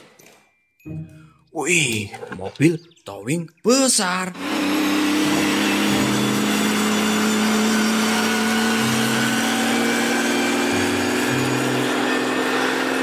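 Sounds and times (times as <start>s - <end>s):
truck diesel engine drone: 4.2s - 13.0s.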